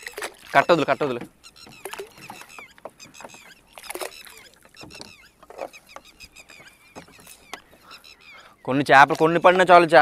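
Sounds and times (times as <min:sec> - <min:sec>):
water splashing and dripping: 0:00.0 - 0:08.0
small birds chirping: 0:00.1 - 0:10.0.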